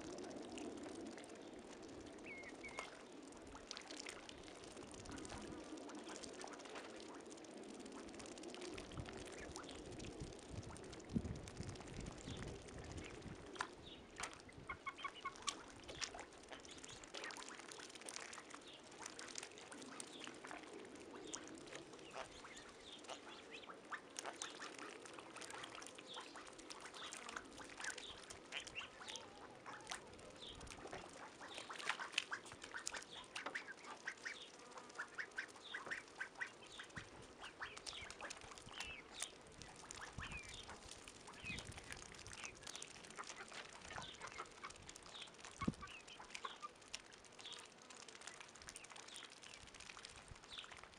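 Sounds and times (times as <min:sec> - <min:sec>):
bills dabbling in muddy water: 0:00.0 - 0:50.9
ducks and geese quacking: 0:14.6 - 0:17.6, 0:22.0 - 0:30.2, 0:30.8 - 0:39.0, 0:43.0 - 0:44.9.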